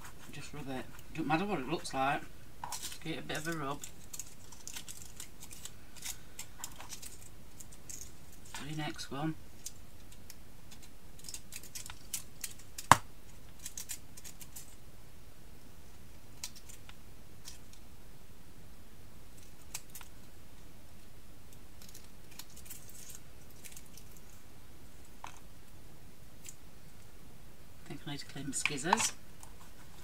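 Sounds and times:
crisp rustles: 2.6 - 14.8, 21.8 - 25.4
scissors snipping foil card: 2.8 - 8.1, 9.6 - 13.0, 13.6 - 14.7.

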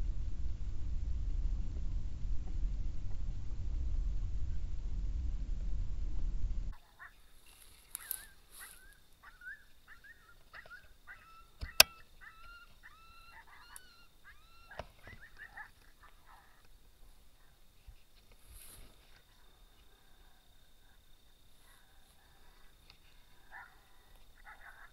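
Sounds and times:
low rumble: 0.0 - 6.8
animals yelping calls: 6.7 - 17.7, 19.0 - 24.9
sharp click: 11.6 - 12.0.

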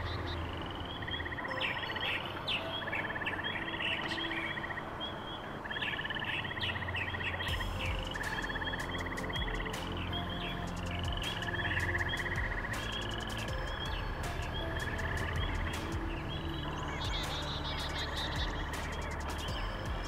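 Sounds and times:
birds chirping and trilling: 0.0 - 20.0.

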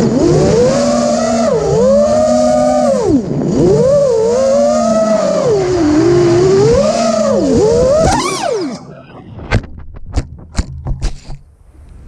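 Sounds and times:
drone motors whining: 0.0 - 9.5
drone knocking into grass: 9.4 - 11.4.

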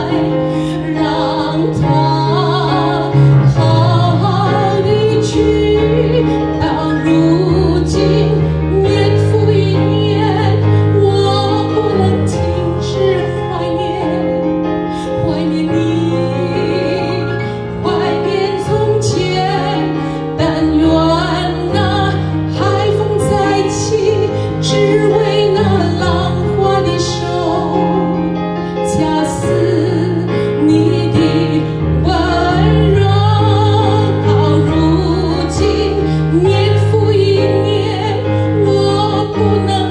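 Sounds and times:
keyboard accompaniment: 0.0 - 39.9
woman singing a slow ballad: 0.0 - 39.9.

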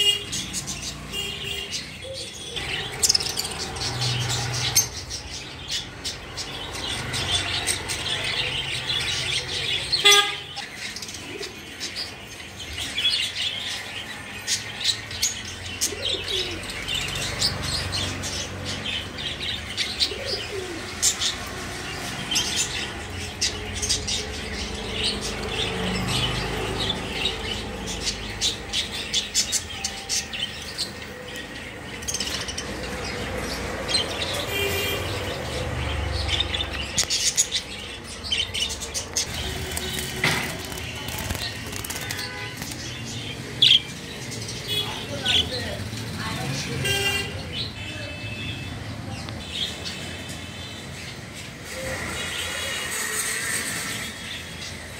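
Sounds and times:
wings flapping: 39.3 - 43.0.

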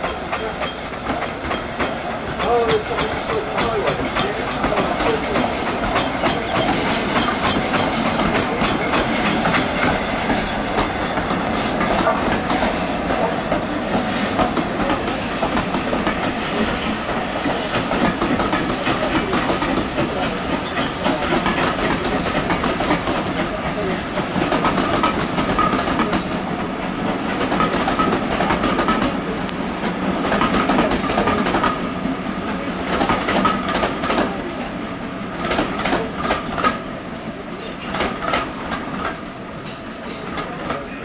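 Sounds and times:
train wheels clicking over rail joints: 0.0 - 34.4, 35.3 - 41.0
train rumble and hiss: 0.0 - 41.0.

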